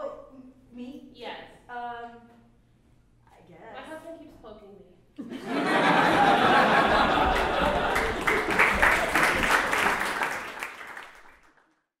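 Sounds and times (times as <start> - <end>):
audience applauding: 5.9 - 11.8.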